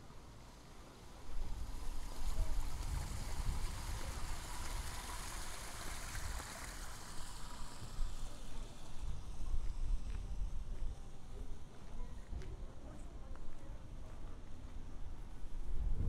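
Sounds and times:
fountain jets splashing: 0:00.0 - 0:10.6.

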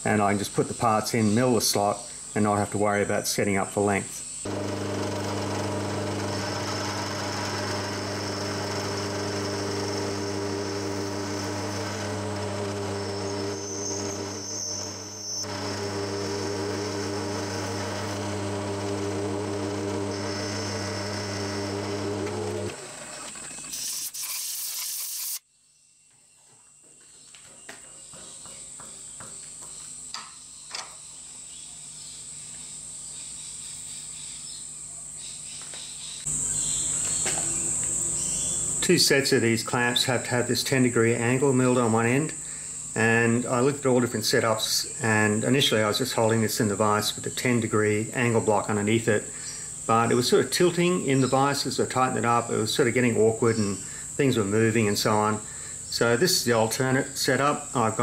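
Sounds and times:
milling machine cutting steel: 0:04.5 - 0:25.4
short hiss: 0:23.7 - 0:25.4.

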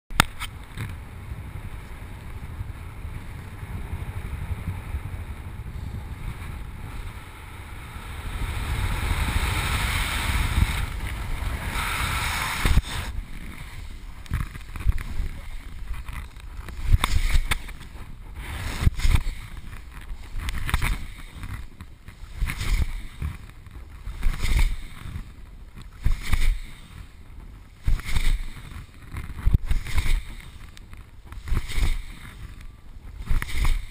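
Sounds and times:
wind rushing over microphone: 0:00.1 - 0:33.9.

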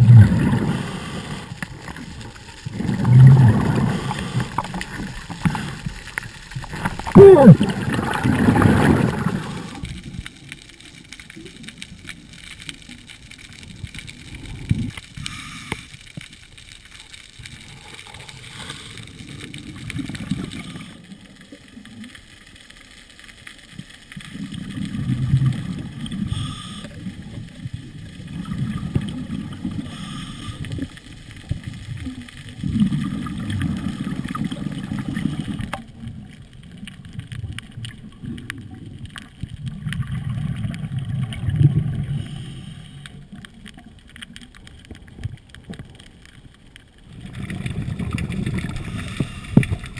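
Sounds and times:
underwater bubbles gurgling: 0:00.0 - 0:49.9
faint hiss: 0:08.9 - 0:36.9, 0:41.4 - 0:44.4.

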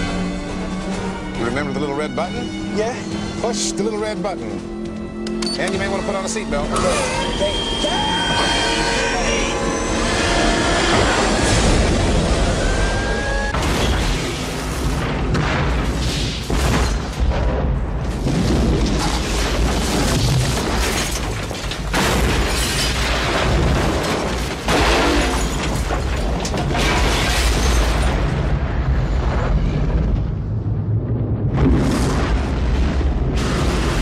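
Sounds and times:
dramatic music: 0:00.0 - 0:16.7
explosion rumbling through a tunnel: 0:13.5 - 0:20.9, 0:27.8 - 0:34.0.

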